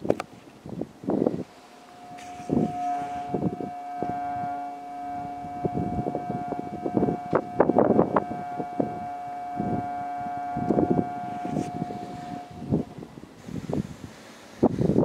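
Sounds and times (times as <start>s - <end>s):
wind gusting on microphone: 0.0s - 15.0s
ship's horn blast: 1.2s - 13.4s.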